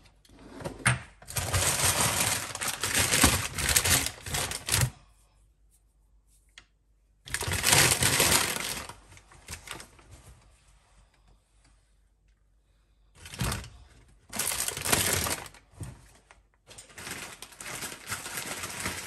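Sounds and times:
shopping bags rustling: 1.2 - 4.9, 7.3 - 10.4, 13.2 - 19.0.

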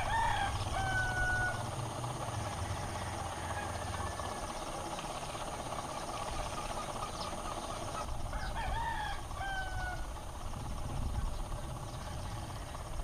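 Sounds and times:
rooster crowing: 0.0 - 4.5, 8.3 - 10.2
background rumble and hiss: 0.0 - 13.0.

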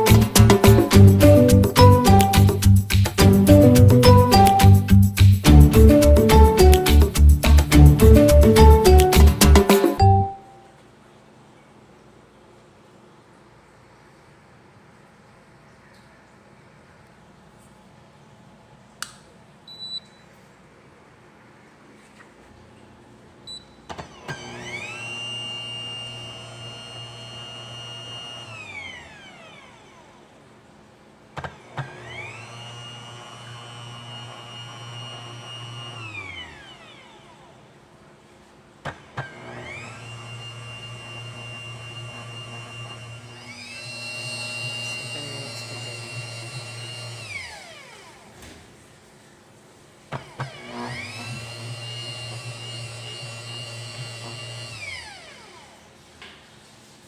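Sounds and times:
dough maker motor whine: 23.9 - 30.3, 31.4 - 37.7, 38.9 - 48.4, 50.1 - 55.9.

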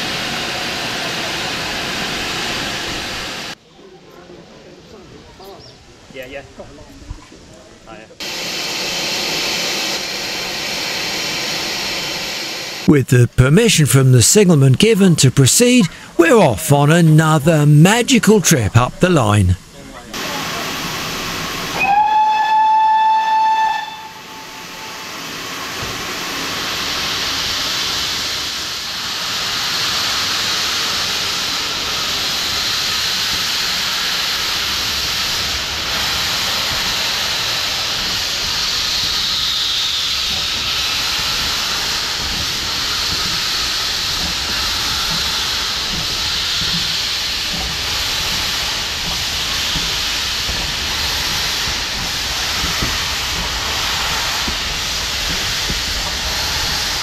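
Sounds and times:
steam hissing: 8.2 - 12.9, 20.2 - 57.0
steam locomotive whistle: 21.7 - 25.3.

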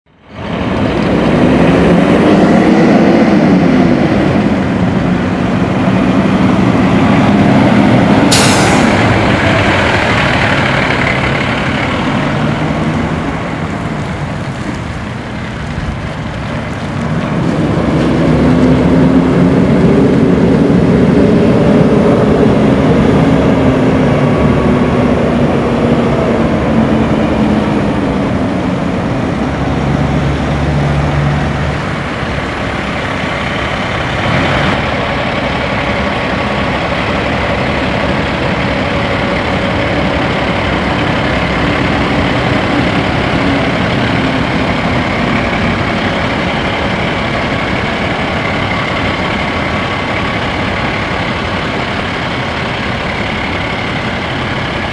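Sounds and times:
diesel truck engine accelerating: 0.1 - 54.9
air brakes hissing: 8.2 - 10.3.

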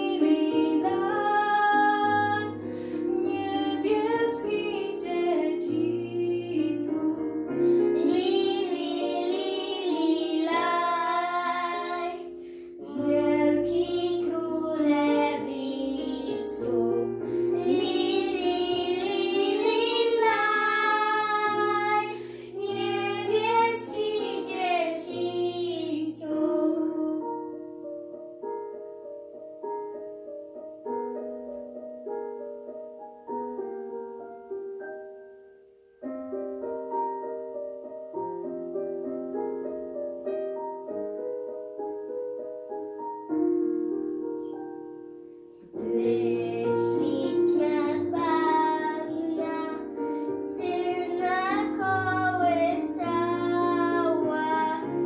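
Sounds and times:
girl and woman singing: 0.0 - 27.6, 45.8 - 55.0
piano accompaniment: 0.0 - 55.0.

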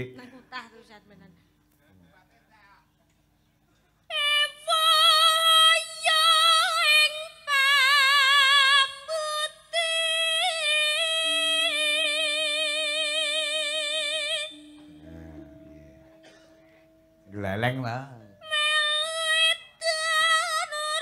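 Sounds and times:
woman singing with vibrato: 4.1 - 15.1, 18.4 - 21.0
faint low held note: 13.1 - 19.2.

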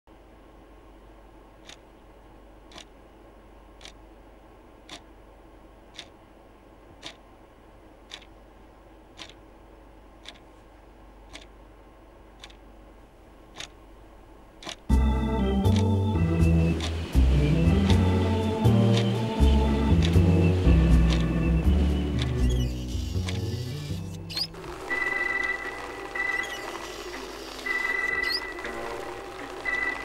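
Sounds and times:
faint steady hum: 0.1 - 30.0
wall clock ticking: 1.6 - 1.8, 2.7 - 2.9, 3.8 - 4.0, 4.8 - 5.1, 5.9 - 6.2, 7.0 - 7.2, 8.0 - 8.4, 9.1 - 9.5, 10.2 - 10.4, 11.2 - 11.6, 12.4 - 12.6, 13.5 - 13.8, 14.6 - 16.0, 16.7 - 18.1, 18.8 - 23.5.

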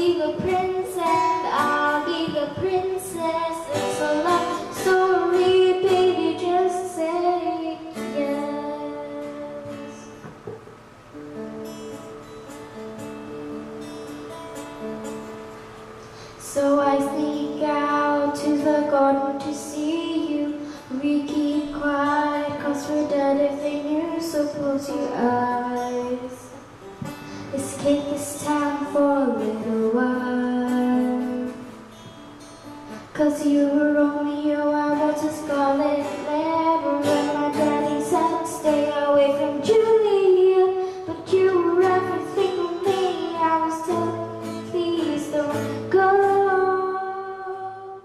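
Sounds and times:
girl singing into a microphone: 0.0 - 10.5, 16.0 - 48.0
strummed acoustic guitar: 0.0 - 48.0.

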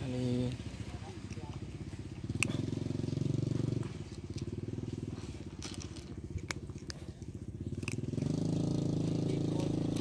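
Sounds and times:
engine droning: 0.0 - 10.0
cat chewing dry kibble: 4.0 - 8.6.

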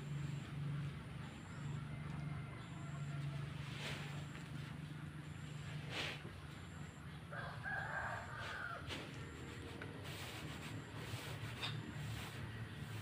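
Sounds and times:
steady low hum: 0.0 - 13.0
rooster crowing: 1.5 - 4.3, 7.3 - 9.4.

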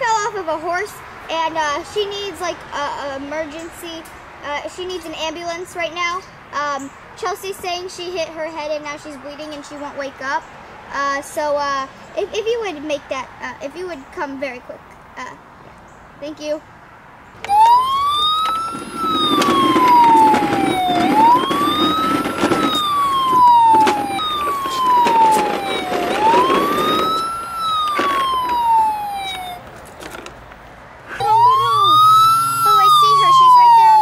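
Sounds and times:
ambulance siren wailing: 17.4 - 29.8, 31.1 - 34.0.

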